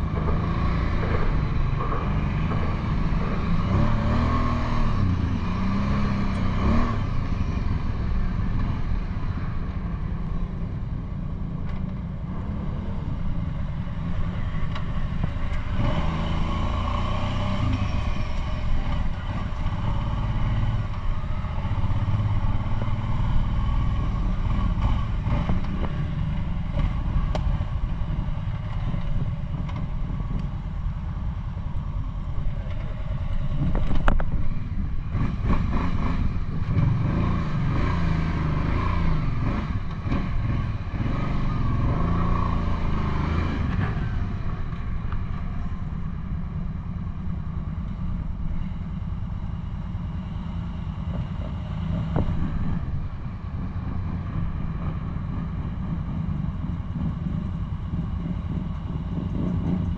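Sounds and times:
atv engine revving: 0.0 - 8.9, 14.3 - 30.4, 32.6 - 45.6.

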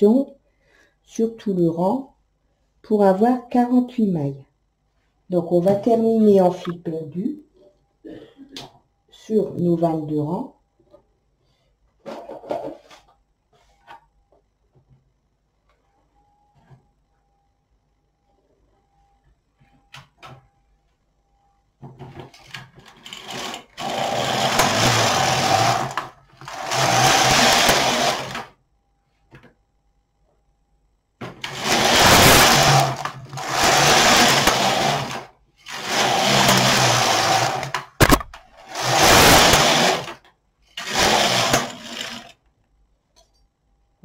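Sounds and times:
knitting machine carriage sliding: 22.3 - 28.5, 31.2 - 40.2, 40.8 - 42.4.

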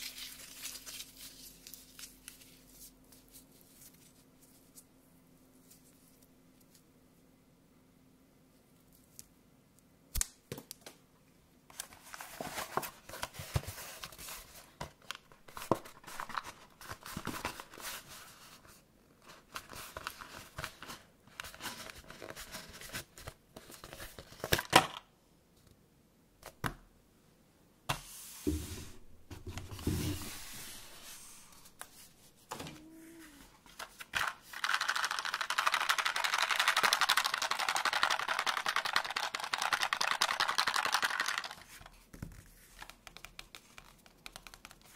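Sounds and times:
plastic packaging rustling: 0.0 - 4.2, 33.6 - 42.0
paper crinkling: 0.0 - 4.8, 32.8 - 44.9.

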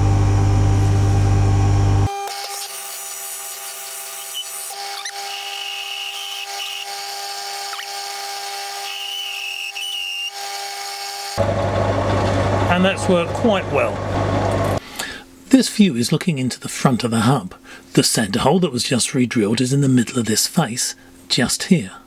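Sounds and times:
loud low hum: 0.0 - 2.1, 11.4 - 14.8
cutting squeals: 4.2 - 14.8
lathe drilling high whine: 4.2 - 14.8.

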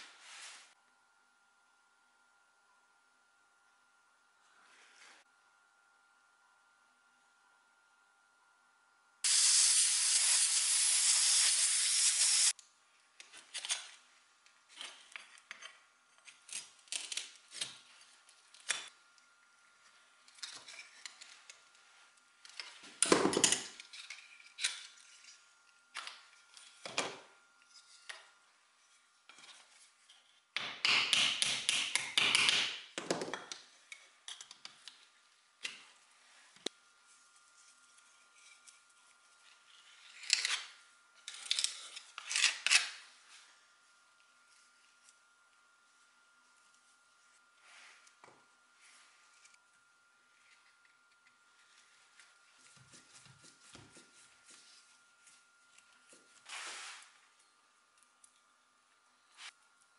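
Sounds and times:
loud steady hiss: 9.2 - 12.5.

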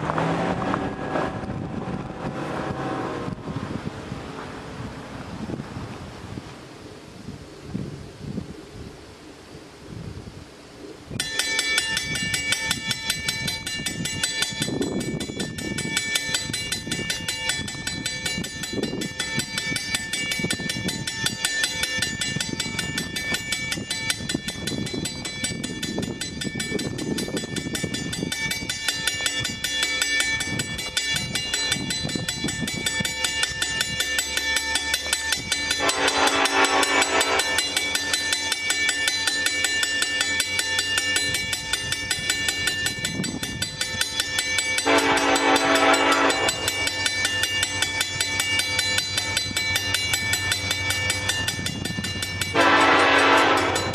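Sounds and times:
locomotive horn: 0.0 - 5.1, 35.7 - 37.8, 44.8 - 46.9, 52.5 - 53.9
level-crossing bell ringing: 11.2 - 53.9.

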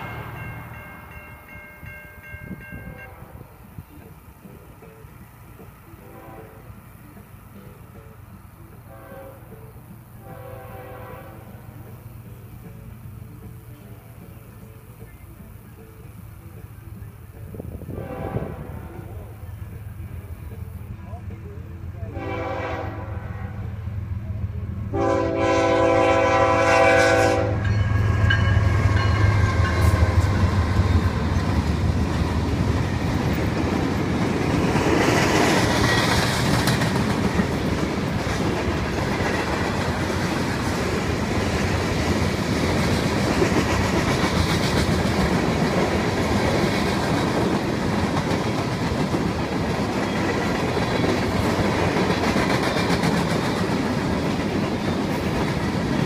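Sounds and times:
train wheels clacking on rails: 0.0 - 3.0, 25.5 - 56.0
locomotive horn blast: 6.0 - 6.8, 8.9 - 11.8, 17.9 - 19.3, 22.1 - 23.9, 24.9 - 30.8
locomotives rumbling past: 16.8 - 56.0.

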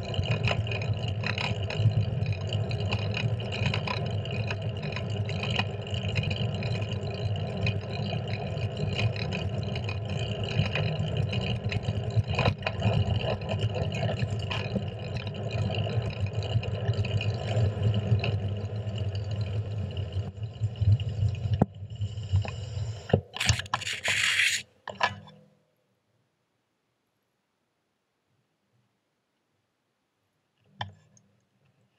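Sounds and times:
brief scraping rush: 23.4 - 24.6.

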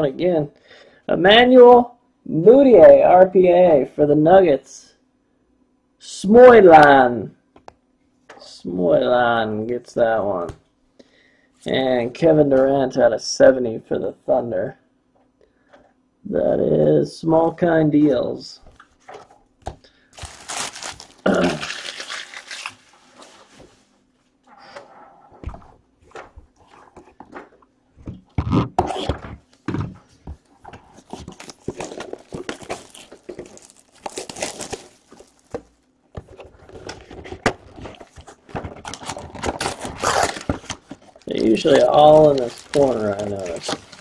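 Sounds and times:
rustling and crinkling of foil packs: 20.1 - 23.8, 30.9 - 35.7, 36.4 - 44.0.

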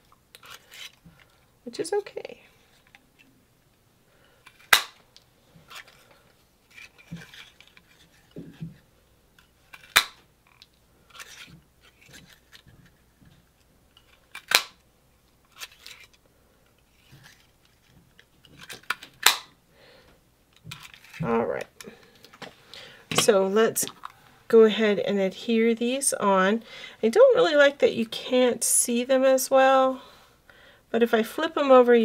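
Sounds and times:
paper punch snapping: 14.4 - 14.8, 19.2 - 19.5.

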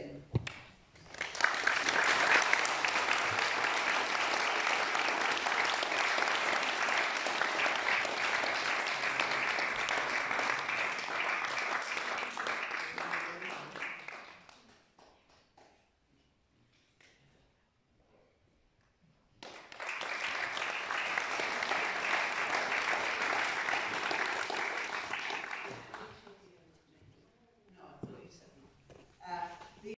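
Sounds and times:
audience applauding: 1.0 - 15.2, 19.4 - 26.3.

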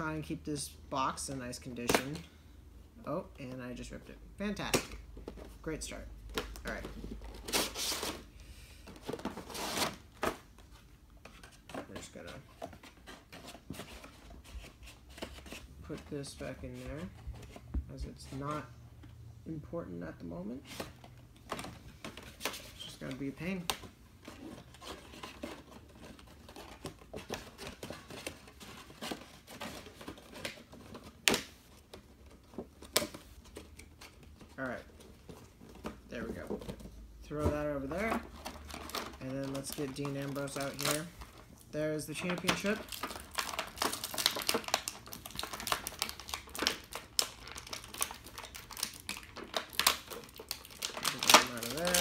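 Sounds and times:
packaging rustling and crinkling: 5.2 - 18.7, 20.6 - 52.0
plastic packaging crinkling: 37.8 - 52.0.

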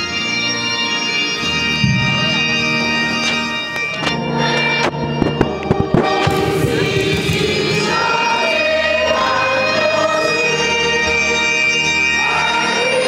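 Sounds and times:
organ chords: 0.0 - 13.0
group of voices singing: 4.0 - 13.0.

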